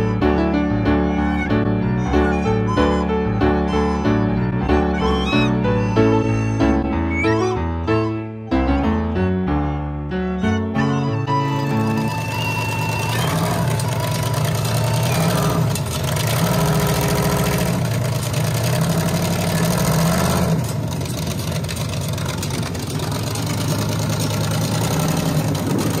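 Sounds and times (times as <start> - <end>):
car engine running at low speed: 11.6 - 26.0.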